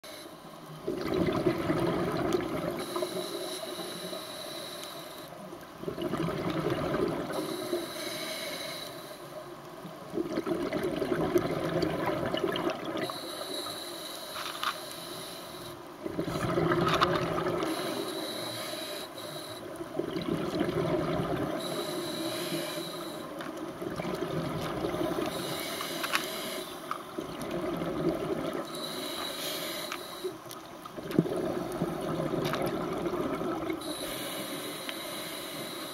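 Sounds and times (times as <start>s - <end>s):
regulator inhale hiss: 0.0s - 0.8s, 2.8s - 5.5s, 7.2s - 9.4s, 13.0s - 16.4s, 17.6s - 19.8s, 21.5s - 23.5s, 24.8s - 27.1s, 28.6s - 30.6s, 33.7s - 35.9s
exhaled bubbles gurgling: 0.8s - 3.2s, 5.8s - 7.8s, 10.0s - 13.2s, 16.0s - 18.3s, 19.6s - 26.5s, 27.1s - 30.2s, 30.9s - 34.8s.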